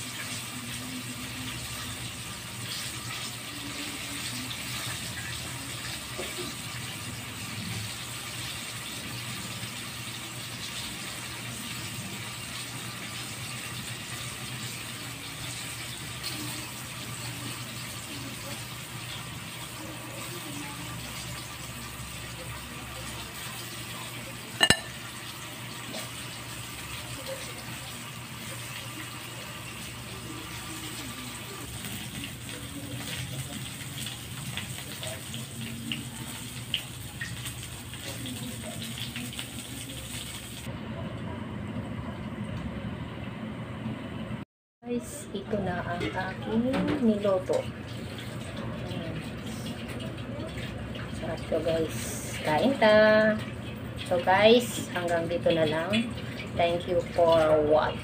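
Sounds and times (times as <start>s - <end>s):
fish sizzling in hot oil: 0.0s - 40.7s.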